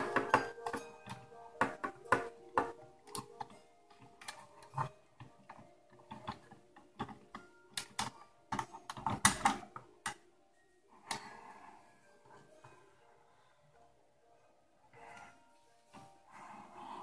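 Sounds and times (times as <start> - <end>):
plastic toy clicks and knocks: 0.0 - 10.2.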